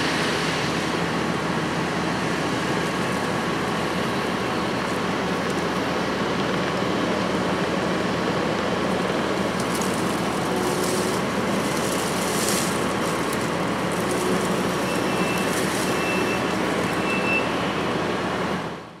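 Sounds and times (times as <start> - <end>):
diesel engine under load: 0.0 - 19.0
brush cutter shredding wood: 8.4 - 17.1.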